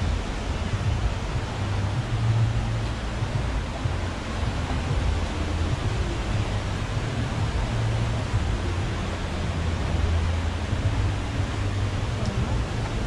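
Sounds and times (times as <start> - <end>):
low rumble on microphone: 0.0 - 13.0
river flowing: 0.0 - 13.0
waterfall roaring: 0.0 - 13.0.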